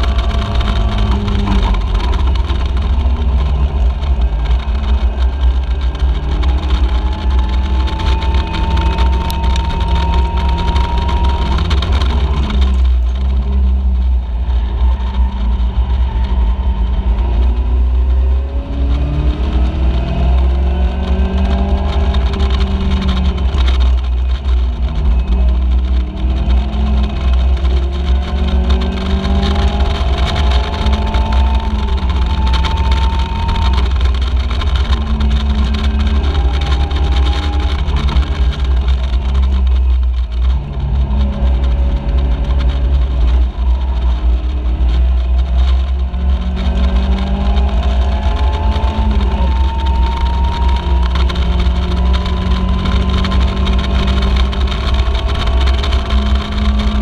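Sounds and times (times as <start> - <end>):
deep steady rumble: 0.0 - 57.0
race car engine revving: 0.0 - 57.0.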